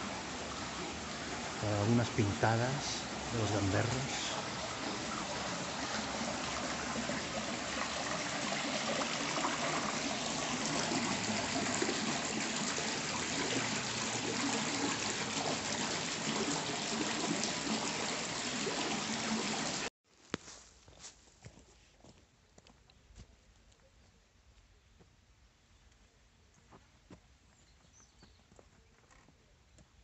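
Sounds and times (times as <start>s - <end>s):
water splashing into stone trough: 4.0s - 19.8s.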